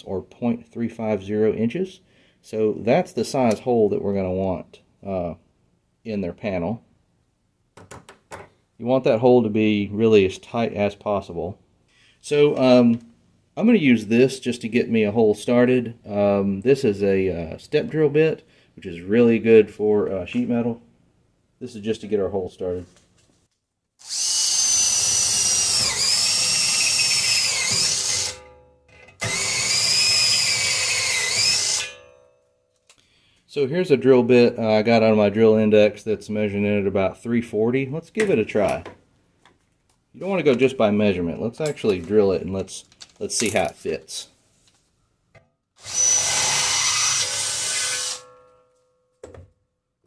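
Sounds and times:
cordless drill whining into sheet metal: 0:24.0 - 0:32.2, 0:45.8 - 0:48.9.

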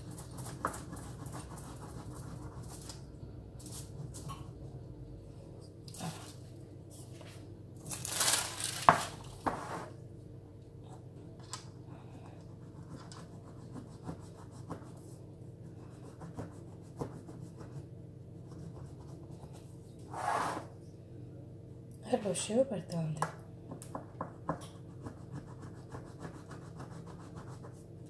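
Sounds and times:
knife scraping and tapping pastry: 0:00.0 - 0:03.0, 0:23.7 - 0:28.0
faint steady hum: 0:00.0 - 0:28.0.

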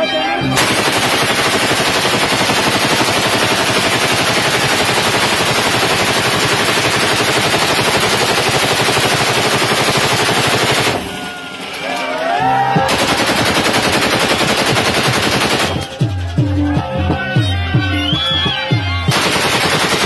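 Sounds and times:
machine gun firing burst: 0:00.6 - 0:11.8, 0:12.9 - 0:16.1, 0:19.1 - 0:20.0.

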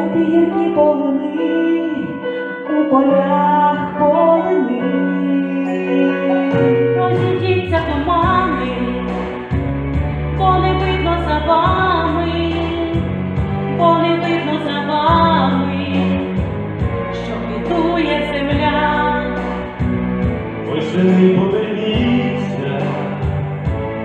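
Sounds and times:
person singing: 0:00.0 - 0:09.2, 0:20.6 - 0:23.4
held low chords: 0:05.3 - 0:24.0.

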